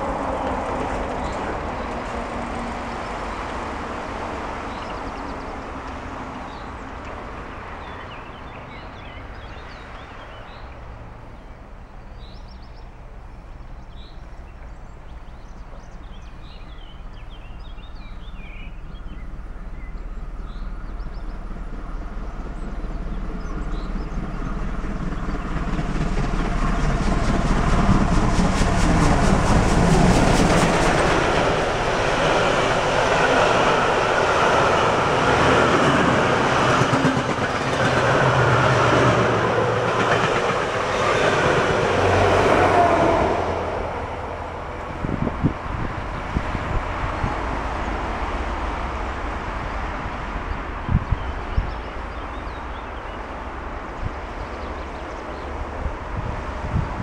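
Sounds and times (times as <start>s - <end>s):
steam train passing at speed: 0.0s - 57.0s.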